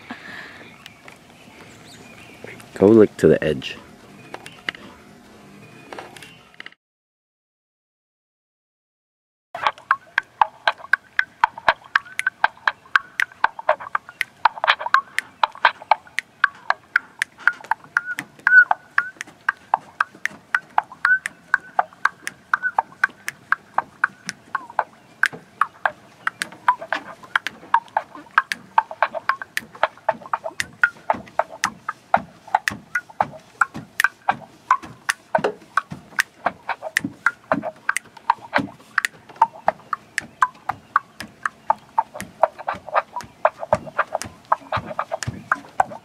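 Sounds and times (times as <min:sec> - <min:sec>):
mouth percussion through megaphone: 0:09.6 - 0:46.0.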